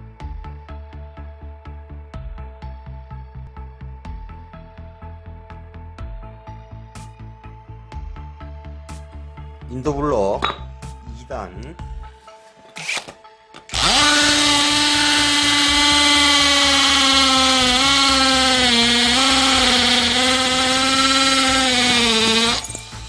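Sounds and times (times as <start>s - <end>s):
hammer drill boring into concrete: 12.8s - 23.0s.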